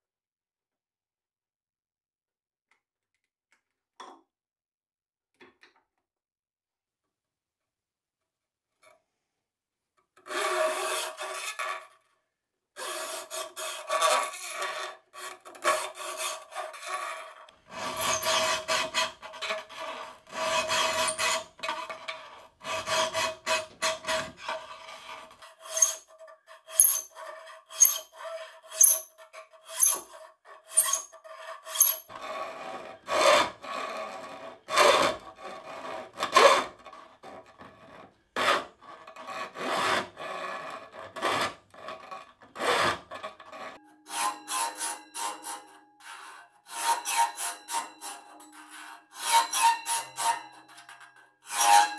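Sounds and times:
file rasping on steel sheet: 10.2 - 12.0, 12.8 - 51.9.

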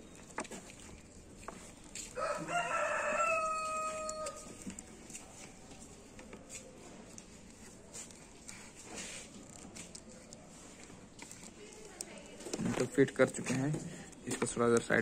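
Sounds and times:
rooster crowing: 2.2 - 4.6
plastic connectors clicking: 11.2 - 15.0.

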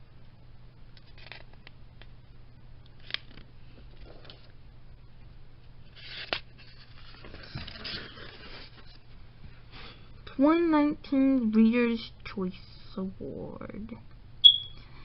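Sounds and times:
faint steady hum: 0.0 - 15.0
magazine pages rustling: 1.0 - 1.7, 3.0 - 4.5, 5.9 - 9.0.

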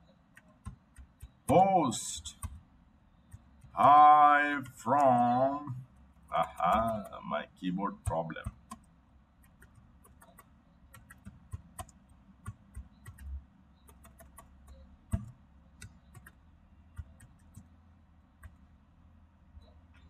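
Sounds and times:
low steady hum: 0.0 - 20.0
computer keyboard keystrokes: 0.3 - 1.6, 2.2 - 2.6, 3.3 - 7.2, 8.0 - 16.4, 17.0 - 17.7.

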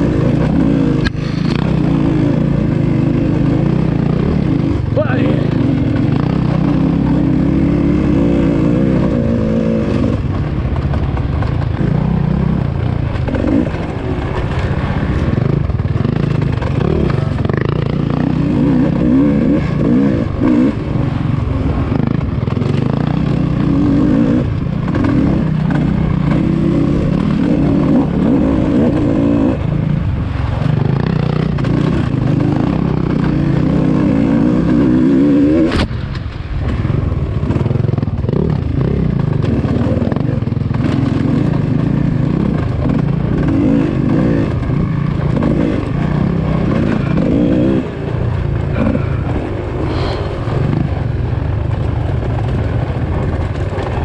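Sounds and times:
dirt bike engine revving: 0.0 - 35.9, 37.3 - 54.0
bike rattling over rough ground: 0.0 - 54.0.

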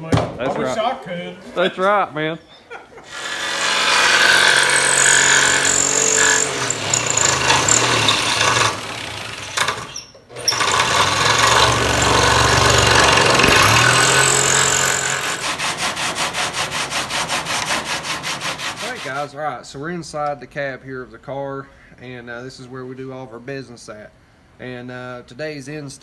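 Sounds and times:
electric jigsaw cutting fiberglass: 3.1 - 18.9
hand sanding block strokes: 15.3 - 19.3.

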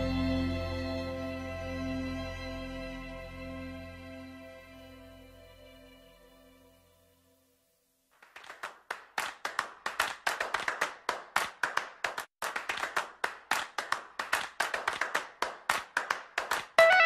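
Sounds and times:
hands clapping: 8.2 - 17.0.

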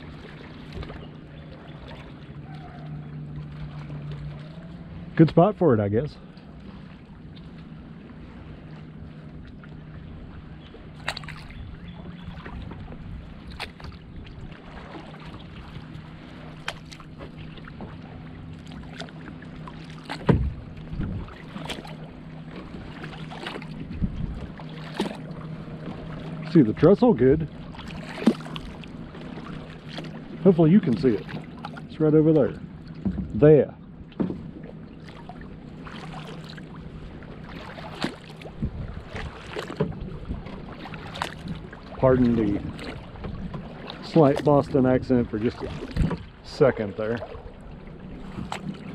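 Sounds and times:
paddle splashing in water: 0.0 - 48.9
thump: 20.2 - 20.6.

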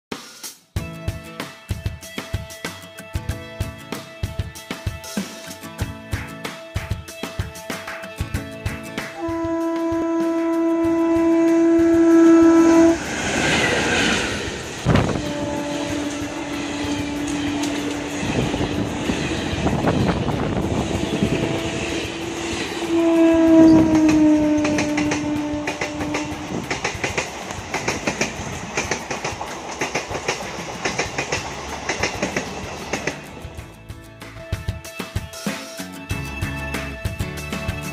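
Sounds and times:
train wheels clicking over rail joints: 8.7 - 33.7
train passing at speed: 9.0 - 33.7
locomotive air horn blasts: 9.2 - 18.9, 20.9 - 26.7.

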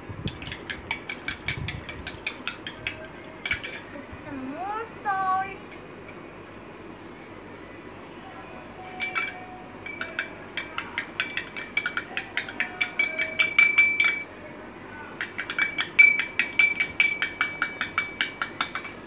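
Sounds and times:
spoon clinking glass bowl: 0.4 - 3.9, 8.8 - 14.3, 15.2 - 19.0.

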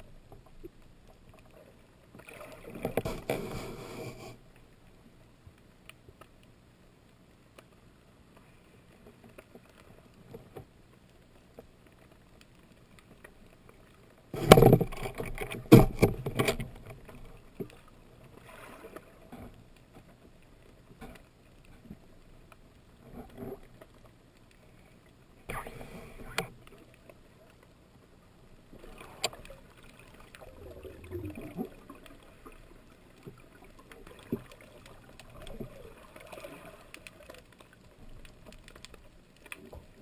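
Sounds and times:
muffled underwater handling noise: 0.1 - 6.6, 7.3 - 40.0
faint clicks: 5.4 - 17.9, 31.1 - 40.0.

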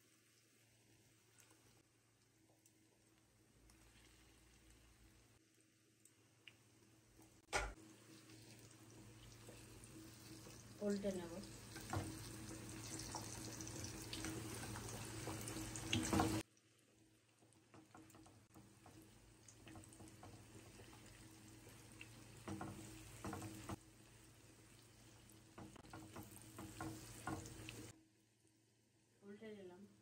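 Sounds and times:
fritters sizzling in hot oil: 0.0 - 28.0
spatula tapping and scraping pan: 11.7 - 12.3, 14.1 - 16.4, 22.3 - 23.8, 25.5 - 27.9.

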